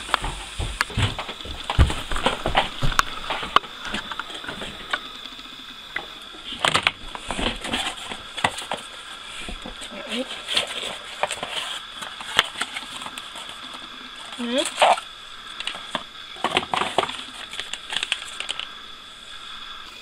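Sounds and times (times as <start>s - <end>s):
footsteps on carpeted stairs: 0.0s - 4.8s.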